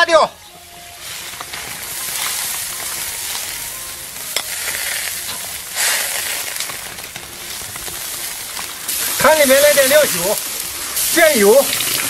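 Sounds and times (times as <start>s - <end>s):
utensils tapping a wok: 0.7s - 12.0s
soup bubbling in a wok: 10.1s - 12.0s.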